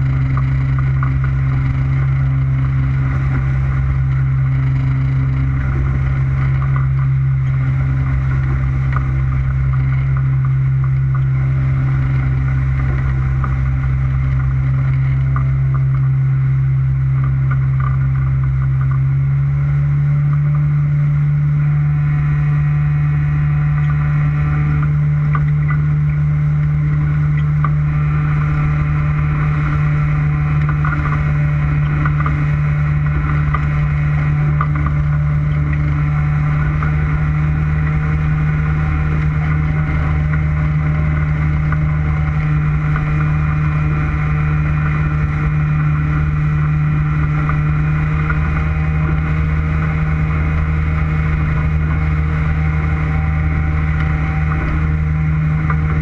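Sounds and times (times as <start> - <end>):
motorboat engine running: 0.0 - 56.0
water rushing past hull: 0.0 - 56.0.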